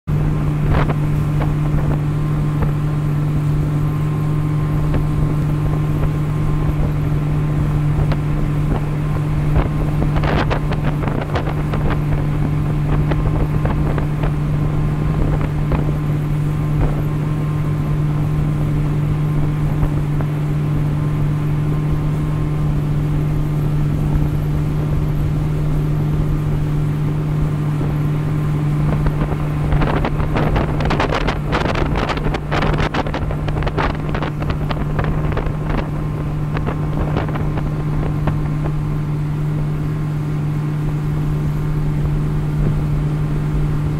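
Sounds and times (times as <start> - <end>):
motorboat engine drone: 0.1 - 43.9
water rushing past: 0.1 - 43.9
wind buffeting microphone: 0.1 - 43.9.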